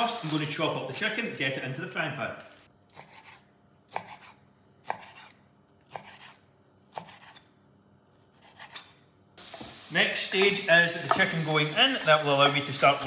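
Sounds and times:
knife chopping on wooden board: 2.9s - 7.4s.

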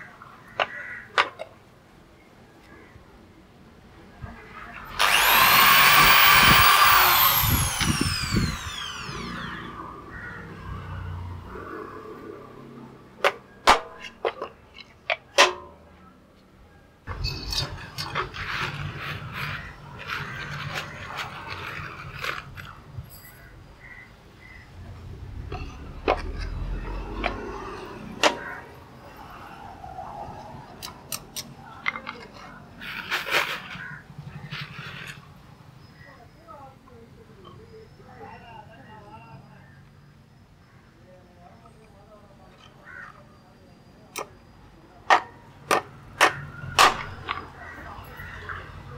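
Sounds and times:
power tool motor whining: 4.8s - 10.1s, 17.9s - 22.8s
sharp metallic clicks and taps: 30.8s - 32.2s.

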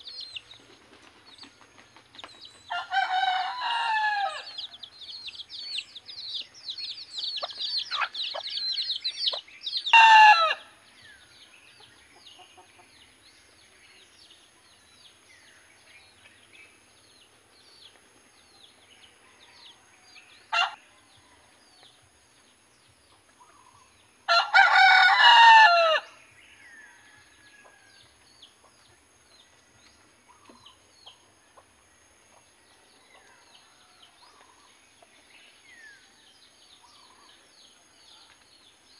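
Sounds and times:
rooster crowing: 2.7s - 4.8s, 9.8s - 10.7s, 24.3s - 26.1s
rapid high chirping: 4.6s - 9.9s.

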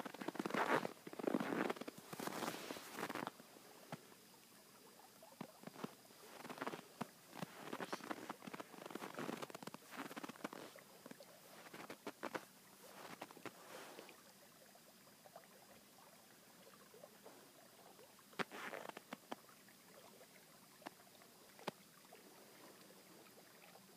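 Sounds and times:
footsteps crunching in snow: 0.0s - 3.3s, 5.6s - 10.8s, 11.6s - 14.0s.

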